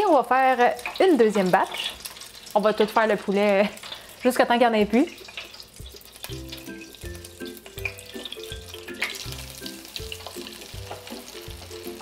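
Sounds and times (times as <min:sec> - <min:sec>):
oil bubbling and crackling: 0:00.0 - 0:12.0
light background music: 0:04.7 - 0:12.0.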